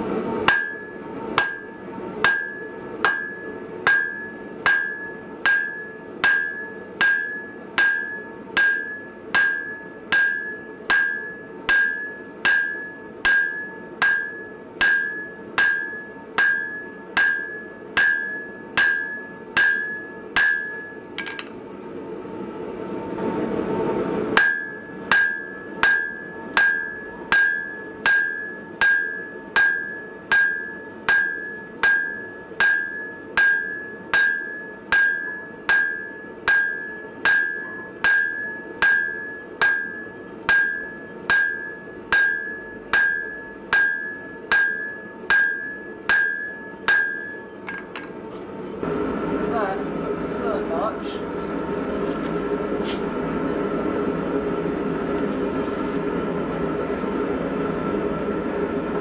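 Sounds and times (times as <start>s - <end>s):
hammer striking steel on anvil: 0.4s - 21.6s, 24.3s - 48.2s
anvil ringing ping: 0.5s - 21.5s, 24.4s - 48.2s.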